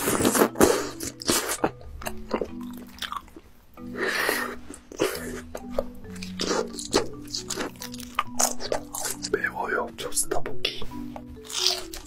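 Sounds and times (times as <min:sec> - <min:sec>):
chewing mouth sounds: 0:00.0 - 0:03.4, 0:04.7 - 0:09.4, 0:11.4 - 0:12.0.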